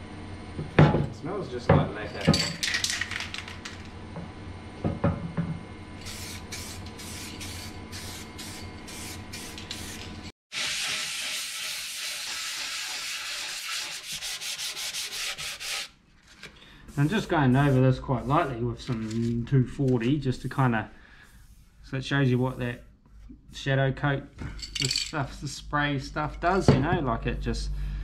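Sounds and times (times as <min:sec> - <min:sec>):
aerosol can spraying: 0:06.0 - 0:13.0
sanding block rubbing: 0:06.0 - 0:15.9, 0:17.0 - 0:18.6.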